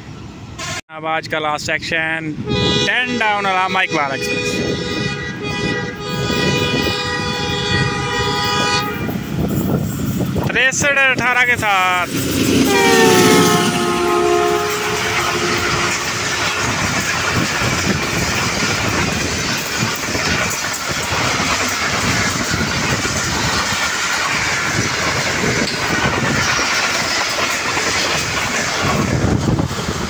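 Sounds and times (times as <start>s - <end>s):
locomotive horn: 0.6s - 0.8s, 2.4s - 9.3s, 12.6s - 18.5s
train wheels clattering over rail joints: 6.2s - 13.6s, 14.3s - 30.0s.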